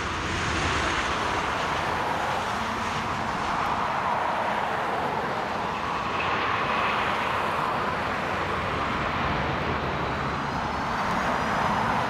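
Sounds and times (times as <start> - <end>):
jet engines roaring: 0.0 - 12.0.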